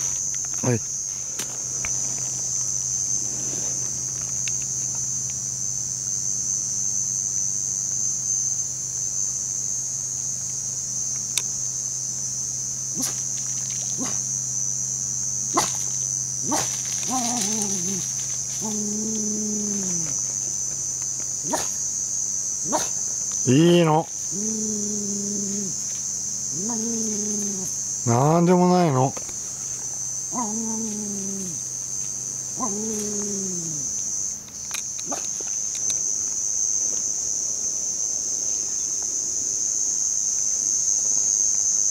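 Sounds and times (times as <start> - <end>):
insects droning: 0.0 - 41.9
dog whining: 16.5 - 20.2, 22.6 - 22.9, 24.3 - 25.8, 26.5 - 27.8, 30.3 - 31.6, 32.6 - 33.9.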